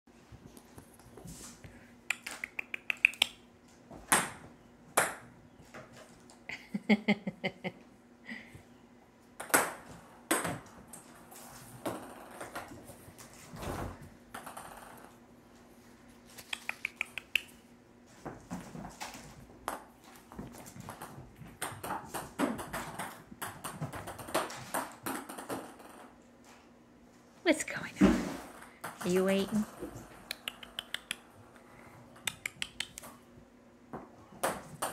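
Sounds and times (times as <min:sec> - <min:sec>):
ping pong balls bouncing on floor: 0:09.4 - 0:10.7, 0:14.3 - 0:15.1, 0:20.9 - 0:26.2, 0:34.0 - 0:34.9.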